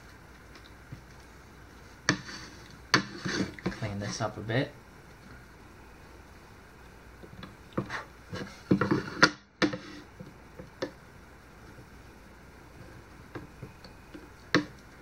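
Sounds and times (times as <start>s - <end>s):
knife scraping wood: 2.1s - 4.2s.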